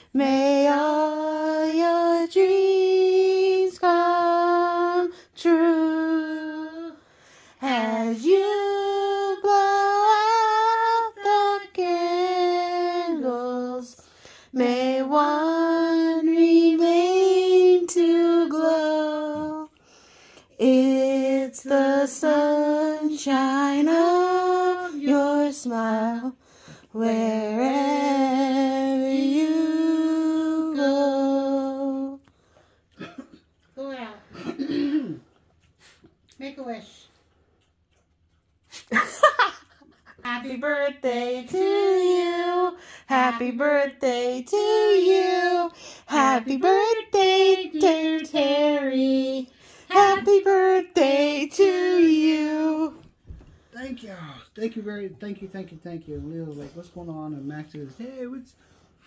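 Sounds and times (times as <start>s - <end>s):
group singing birthday song: 0.0s - 33.3s, 39.4s - 53.2s.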